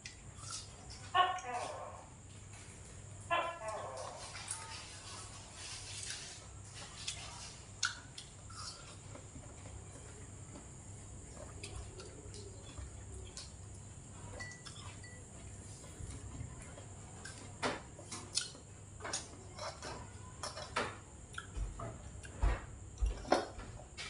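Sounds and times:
dishes clinking: 0:14.2 - 0:15.4.

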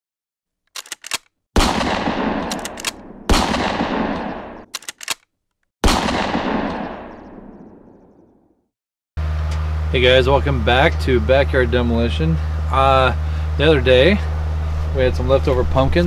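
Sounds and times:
quick sharp gunshot cracks: 0:01.0 - 0:05.2, 0:05.8 - 0:07.9
loud echoing gunshot blasts: 0:01.6 - 0:04.7, 0:05.8 - 0:08.1.

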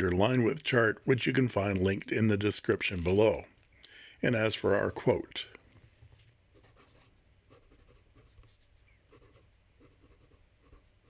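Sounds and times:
pen scratching on paper: 0:06.5 - 0:11.0.

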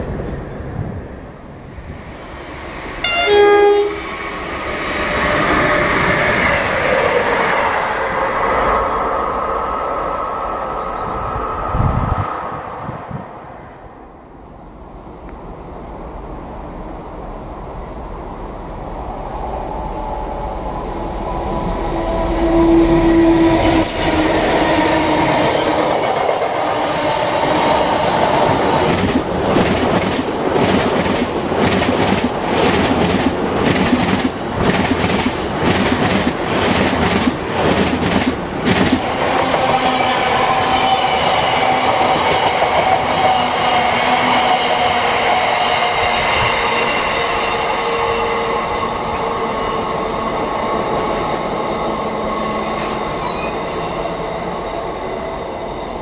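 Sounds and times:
train wheels clickety-clack: 0:23.5 - 0:47.5.

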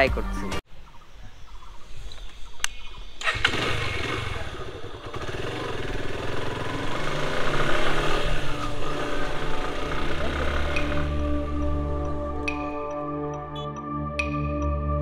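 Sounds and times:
motorcycle engine running: 0:03.2 - 0:12.7.

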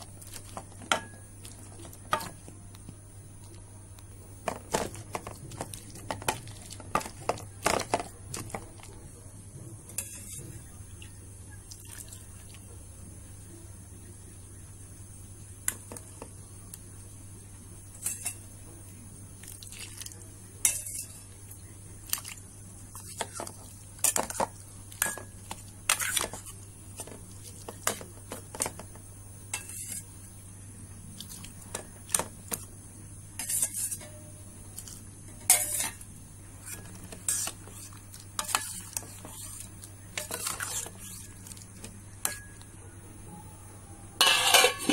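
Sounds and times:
metal spoon scraping a pot: 0:10.0 - 0:10.5, 0:20.6 - 0:21.2, 0:29.5 - 0:30.1, 0:33.4 - 0:34.2, 0:34.8 - 0:36.0, 0:36.6 - 0:42.6, 0:44.2 - 0:44.9.

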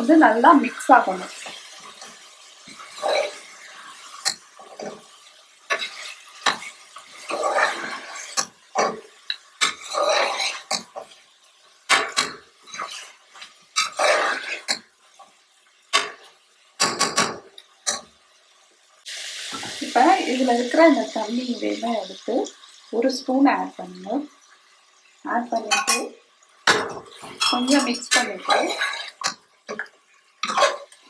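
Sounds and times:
spoon scraping metal pot: 0:02.7 - 0:03.6, 0:05.7 - 0:10.9, 0:13.8 - 0:14.8, 0:27.2 - 0:29.4, 0:30.4 - 0:31.0.

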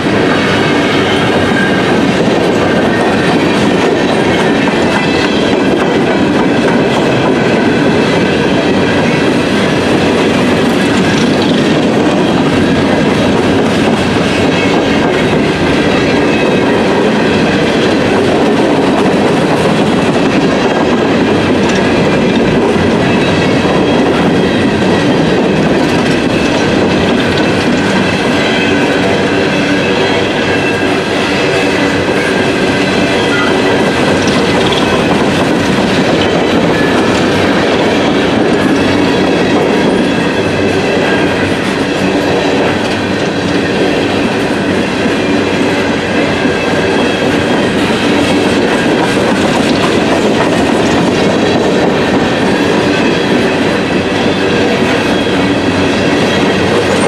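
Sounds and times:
train wheels rumbling on rails: 0:00.0 - 0:57.0
high wheel squeal: 0:27.5 - 0:42.9.

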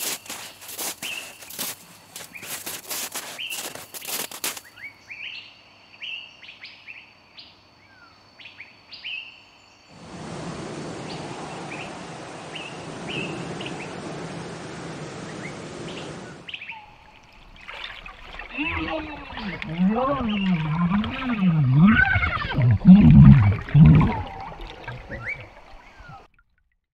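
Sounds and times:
crunching footsteps: 0:00.0 - 0:04.7, 0:16.9 - 0:21.4
steady rushing noise: 0:10.0 - 0:16.5
small birds chirping: 0:11.0 - 0:22.6.

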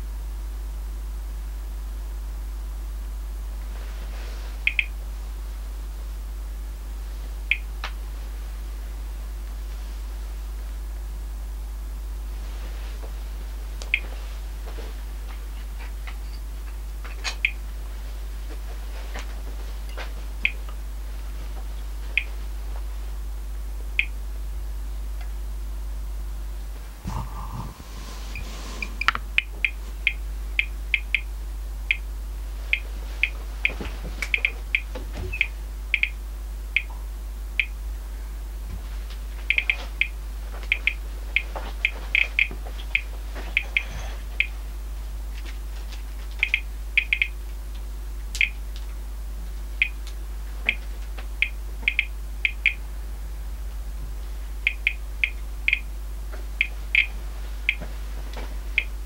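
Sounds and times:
radiation meter chirping beeps: 0:04.6 - 0:05.0, 0:07.5 - 0:07.7, 0:17.4 - 0:17.6, 0:24.0 - 0:24.2, 0:27.1 - 0:31.3, 0:31.9 - 0:32.1, 0:34.3 - 0:36.9, 0:37.6 - 0:37.8, 0:39.5 - 0:44.5, 0:46.4 - 0:47.4, 0:48.4 - 0:48.6, 0:49.8 - 0:50.0, 0:51.4 - 0:52.8, 0:54.6 - 0:55.9, 0:56.6 - 0:57.8.

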